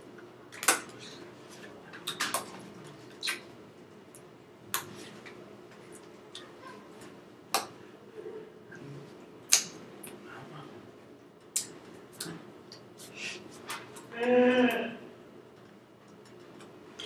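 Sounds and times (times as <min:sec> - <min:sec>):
low steady hum: 0:00.0 - 0:17.0
hands clapping and slapping: 0:07.5 - 0:07.8.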